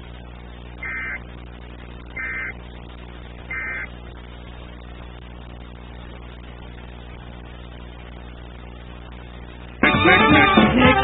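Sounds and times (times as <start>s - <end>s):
low hum: 0.0s - 10.9s
digital data tone bursts: 0.8s - 1.2s, 2.2s - 2.6s, 3.5s - 3.9s.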